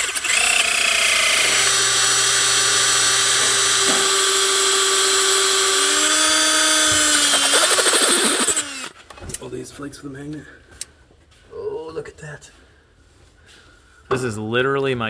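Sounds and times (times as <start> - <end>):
cordless drill whining into steel: 0.0 - 9.0.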